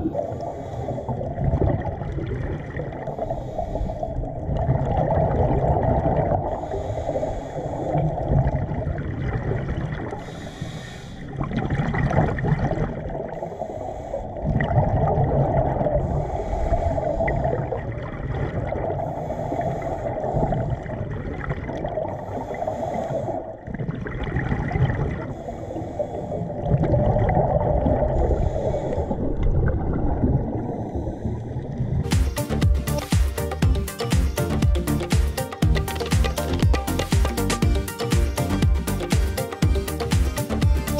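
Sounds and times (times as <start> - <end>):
gurgling exhaled bubbles: 0.0 - 3.5, 4.1 - 6.7, 8.0 - 10.3, 11.3 - 13.5, 14.3 - 25.4, 26.2 - 32.1
regulator hissing inhale: 0.3 - 1.3, 3.2 - 4.2, 6.5 - 8.2, 10.2 - 11.3, 13.4 - 14.4, 19.0 - 20.9, 22.2 - 23.5, 25.3 - 26.5, 28.2 - 29.2.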